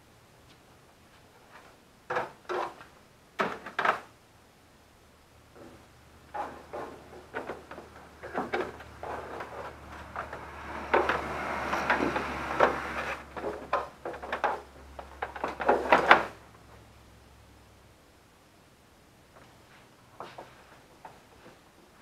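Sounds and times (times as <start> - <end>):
scraping and rustling: 5.6 - 14.7.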